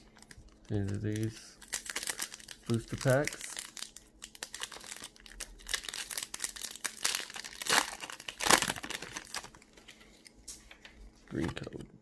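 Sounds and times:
foil wrapper crinkling: 0:00.0 - 0:10.0
foil wrapper crackles: 0:00.1 - 0:09.7.

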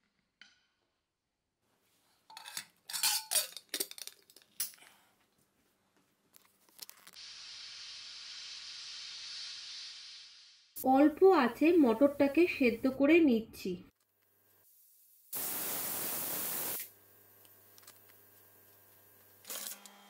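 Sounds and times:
metal lid clanks and clinks: 0:02.3 - 0:04.2
gas burner hissing: 0:07.2 - 0:12.7, 0:14.6 - 0:16.9.

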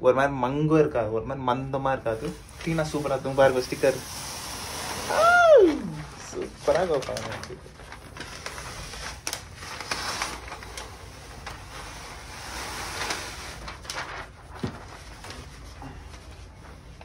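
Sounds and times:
sticker sheet rustling and crinkling: 0:05.7 - 0:17.0.

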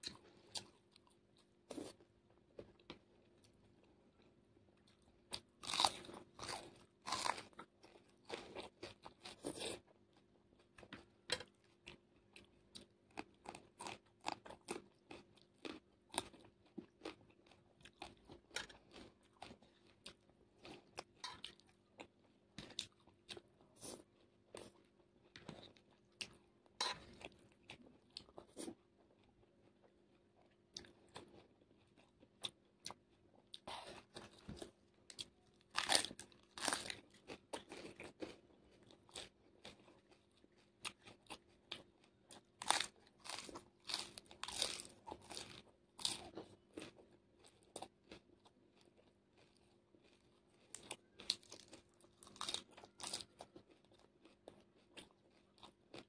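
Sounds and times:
crunching raw vegetables: 0:33.8 - 0:38.4, 0:40.9 - 0:56.0.

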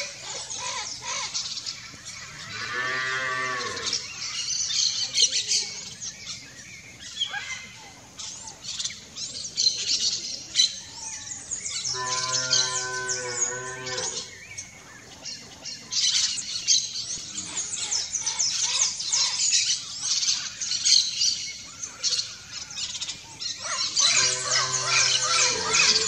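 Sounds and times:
birds chirping: 0:00.0 - 0:26.0
cow mooing: 0:02.5 - 0:04.0, 0:11.9 - 0:14.3, 0:24.1 - 0:26.0.

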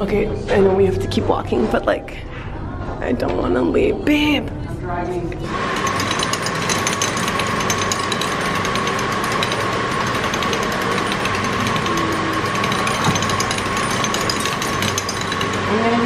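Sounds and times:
hand-cranked machine gears grinding: 0:05.5 - 0:16.0.

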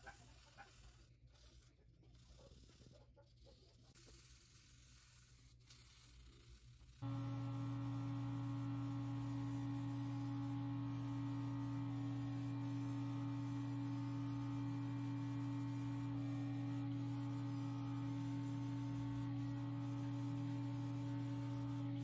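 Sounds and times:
low machine hum: 0:07.0 - 0:22.0
spray gun hissing: 0:07.0 - 0:22.0.

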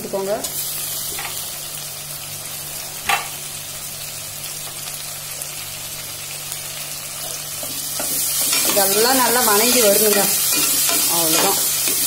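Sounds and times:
vegetables sizzling in pot: 0:00.0 - 0:12.0.

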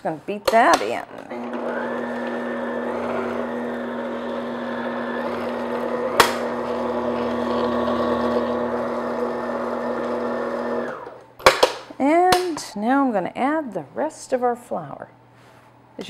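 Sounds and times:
stand mixer motor humming: 0:01.3 - 0:11.2.

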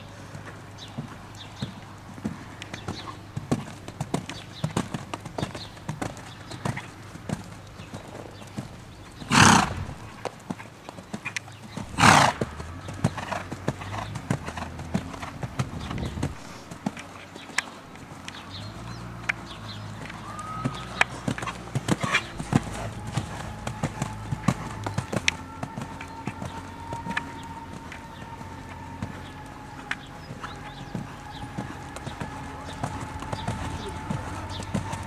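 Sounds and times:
horse hoofbeats on sand: 0:00.0 - 0:35.0
loud rushing noise: 0:09.3 - 0:10.2.

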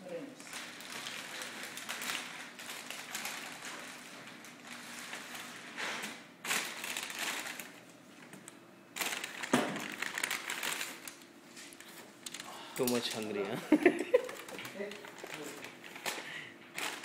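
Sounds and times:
plastic bags and paper crinkling: 0:00.4 - 0:17.0.

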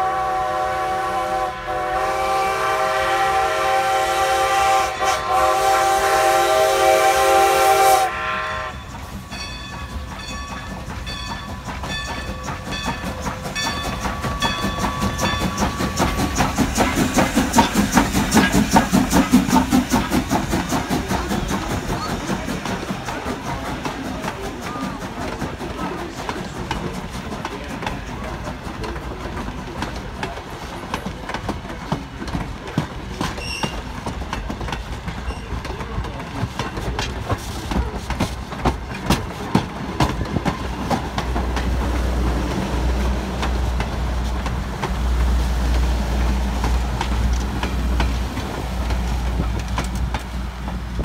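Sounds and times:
train wheels clicking over rail joints: 0:08.7 - 0:51.0.

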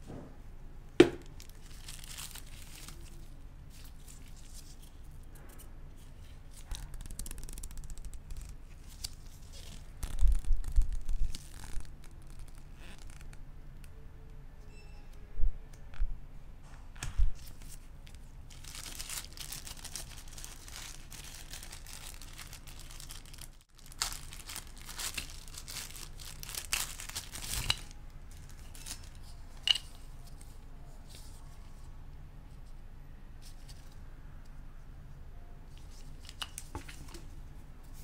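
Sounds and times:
paper crinkling and tearing: 0:01.4 - 0:04.9, 0:06.5 - 0:13.3, 0:17.4 - 0:30.4.

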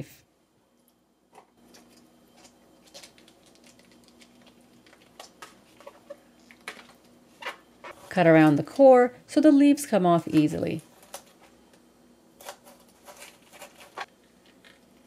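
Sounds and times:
cabbage leaves peeled by hand: 0:12.4 - 0:14.8.

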